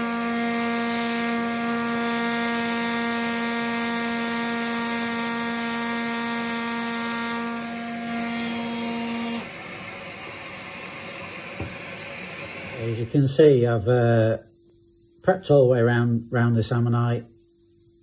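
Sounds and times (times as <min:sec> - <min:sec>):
pneumatic air scribe buzzing: 0:00.0 - 0:09.8.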